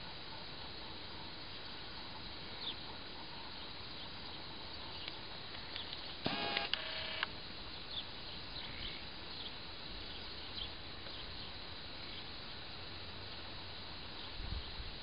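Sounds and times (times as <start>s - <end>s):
faint bird chirps: 2.5s - 12.6s.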